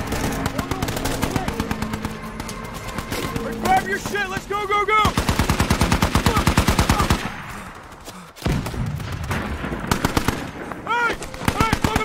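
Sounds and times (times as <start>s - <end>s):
automatic gunfire: 0.0s - 4.1s, 5.0s - 7.4s, 8.4s - 10.6s.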